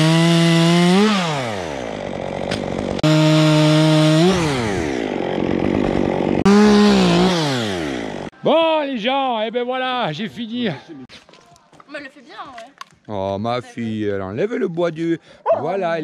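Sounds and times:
chainsaw cutting wood: 0.0 - 8.3.

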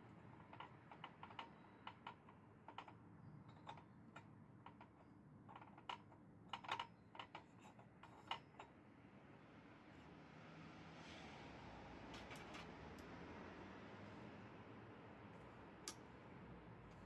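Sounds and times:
metallic clicks and taps: 15.8 - 16.0.

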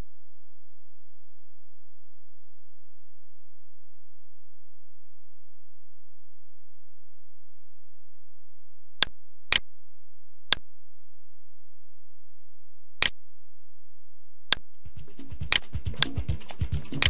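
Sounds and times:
steady low hum: 0.0 - 17.0
computer mouse clicks: 14.5 - 17.0.

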